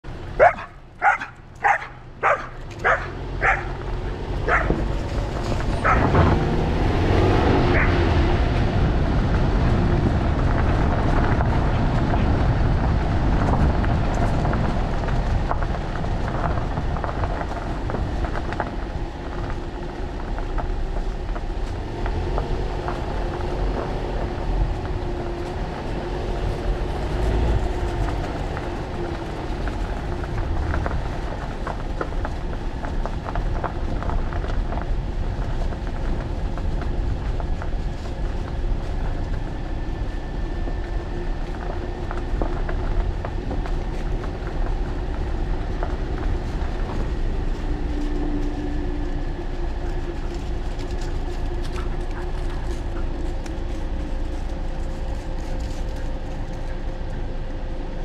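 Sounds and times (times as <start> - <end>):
low rumble with wavering tone: 0.0 - 58.0
dog barking: 0.4 - 3.8, 4.5 - 4.8, 5.8 - 6.1, 7.7 - 8.0.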